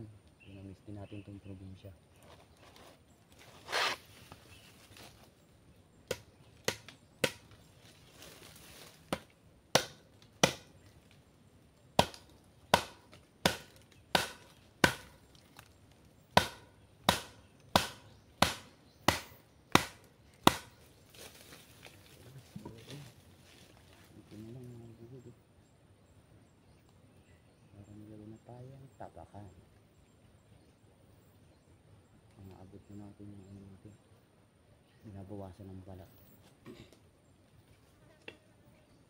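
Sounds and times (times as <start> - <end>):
chopping blows into wood: 12.0 - 15.2, 16.4 - 20.8.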